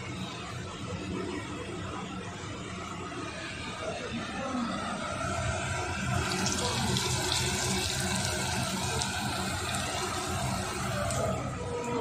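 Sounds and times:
batter frying in hot oil: 0:05.6 - 0:12.0.

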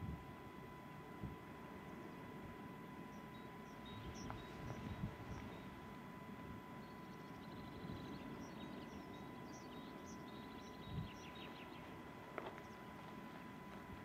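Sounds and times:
wind rumble on microphone: 0:00.0 - 0:00.3, 0:03.9 - 0:05.6, 0:10.8 - 0:11.4
small birds chirping: 0:02.9 - 0:05.8, 0:06.8 - 0:13.5.

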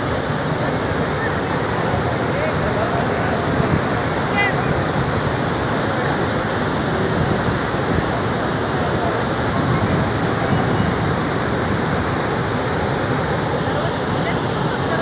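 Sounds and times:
water rushing down spillway: 0:00.0 - 0:15.0.

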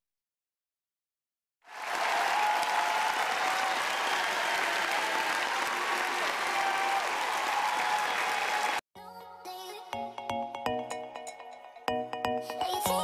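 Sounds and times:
crowd applause: 0:01.7 - 0:08.8.

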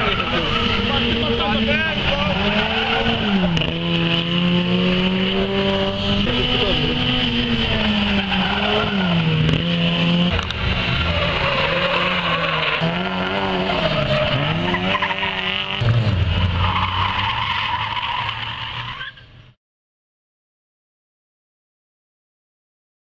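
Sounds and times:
car engine revving: 0:00.0 - 0:18.9
tyres squealing: 0:07.9 - 0:09.3, 0:10.9 - 0:15.5.

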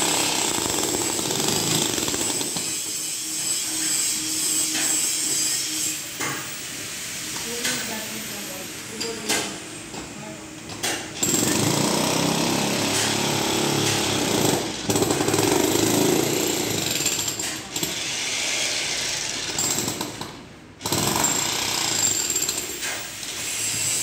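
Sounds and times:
jackhammer hammering concrete: 0:00.0 - 0:02.8, 0:11.2 - 0:18.1, 0:19.3 - 0:22.8.

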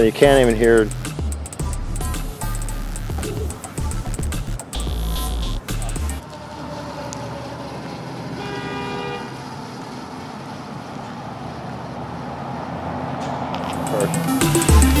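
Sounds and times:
electric motorcycle passing: 0:00.0 - 0:15.0
traffic noise: 0:00.0 - 0:15.0
short horn-like tone: 0:06.2 - 0:09.5
tyre hiss on wet pavement: 0:06.2 - 0:15.0.

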